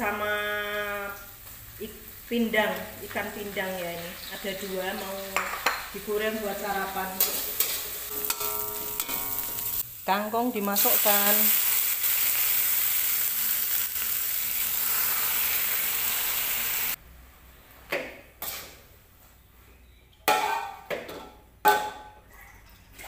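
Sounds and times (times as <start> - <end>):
vegetables sizzling in hot oil: 0.0 - 17.0
metal cookware clanking: 6.8 - 9.8, 20.2 - 22.2.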